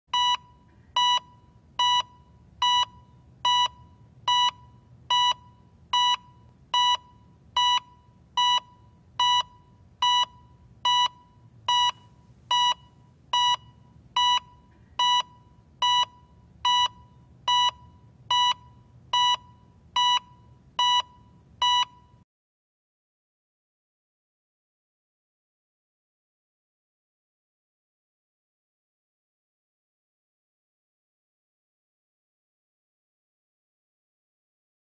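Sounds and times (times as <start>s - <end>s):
heart monitor beeping: 0.1s - 22.2s.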